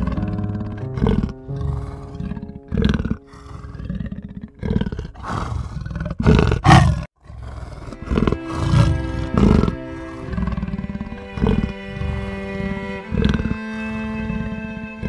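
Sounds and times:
background music with held tones: 0:00.0 - 0:04.3, 0:08.0 - 0:15.0
big cat growling and roaring: 0:00.0 - 0:12.3.

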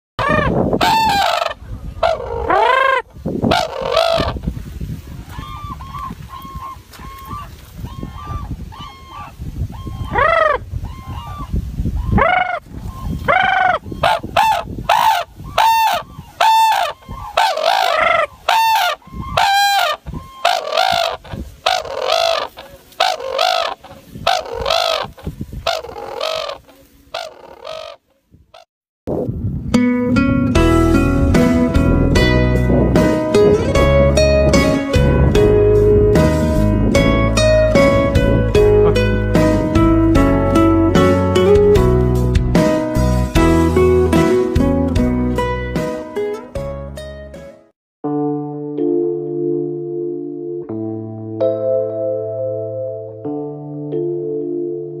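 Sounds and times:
cranes trumpeting calls: 0:00.2 - 0:04.4, 0:05.3 - 0:28.7.

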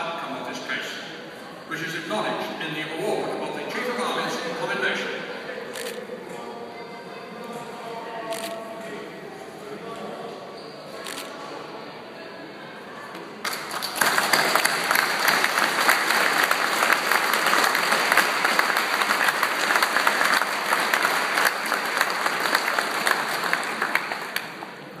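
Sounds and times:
audience applauding: 0:13.4 - 0:24.9.

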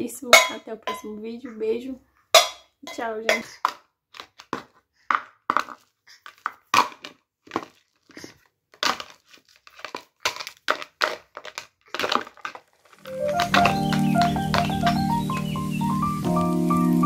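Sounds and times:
plastic bowls clacking together: 0:02.4 - 0:15.5
music: 0:13.0 - 0:17.0.

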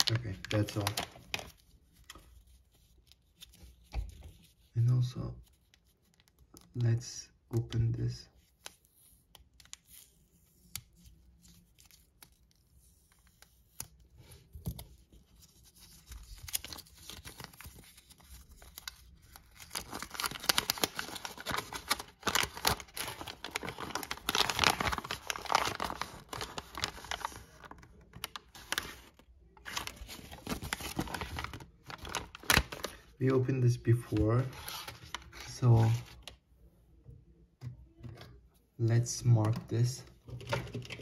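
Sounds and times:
paper leaflet rustling: 0:10.7 - 0:33.2, 0:33.9 - 0:36.4
plastic packet crinkling: 0:18.4 - 0:33.1.

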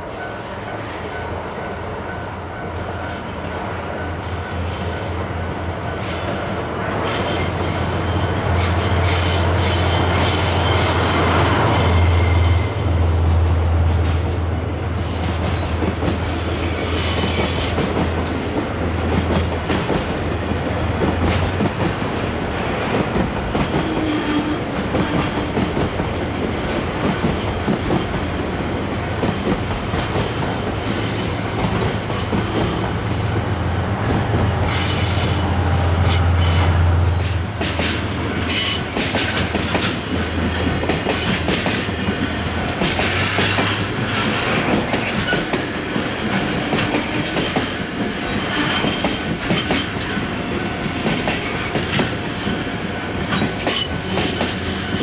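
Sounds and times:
high wheel squeal: 0:04.2 - 0:13.4, 0:34.6 - 0:38.9
locomotive engine hum: 0:30.3 - 0:39.6.

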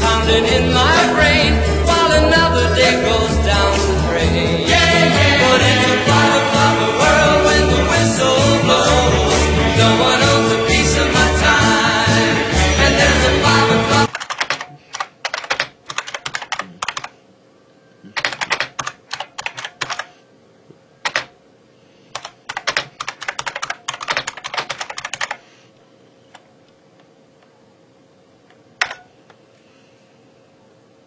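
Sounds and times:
keyboard key clicks: 0:14.1 - 0:17.1, 0:18.2 - 0:20.1, 0:21.0 - 0:21.3, 0:22.2 - 0:25.4.

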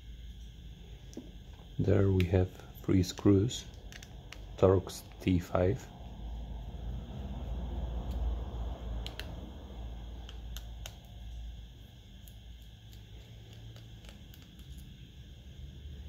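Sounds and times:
low steady hum: 0:00.0 - 0:16.0
screwdriver clicks and taps: 0:09.0 - 0:09.3.

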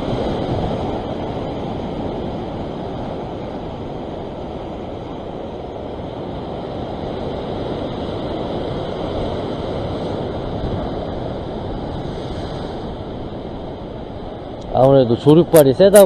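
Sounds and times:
ocean surf over rocks: 0:00.0 - 0:16.0.

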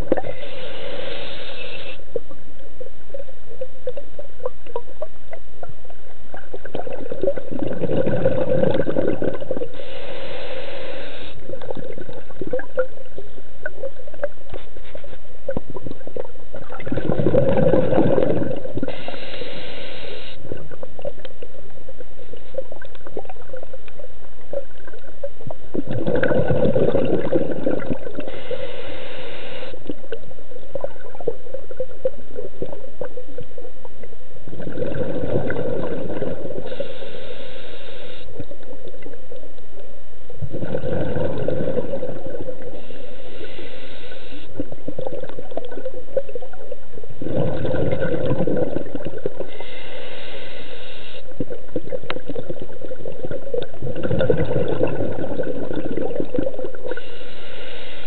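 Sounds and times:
exhaled bubbles underwater: 0:00.0 - 0:57.6
regulator inhalation hiss: 0:00.2 - 0:02.1, 0:09.7 - 0:11.6, 0:18.8 - 0:20.6, 0:28.2 - 0:29.9, 0:36.6 - 0:38.5, 0:42.6 - 0:44.7, 0:49.4 - 0:51.4, 0:56.8 - 0:58.0.

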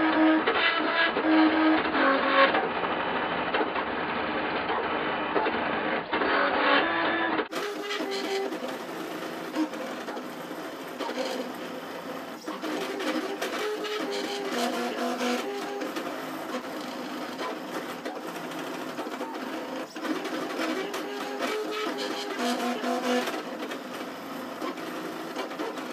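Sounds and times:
stepper motors whirring: 0:06.2 - 0:25.9.

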